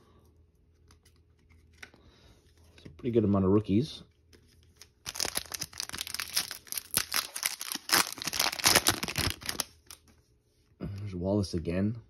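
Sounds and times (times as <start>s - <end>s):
wrapper crinkling and tearing: 4.7s - 10.0s.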